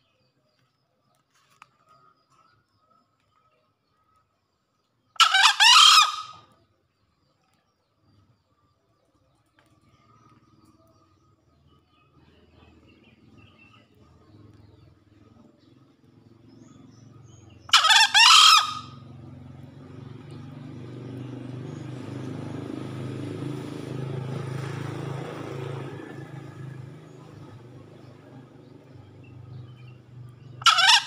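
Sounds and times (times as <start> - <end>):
junglefowl crowing: 5.2 - 6.4, 17.7 - 19.1, 30.6 - 31.0
low steady rumble: 9.8 - 31.0.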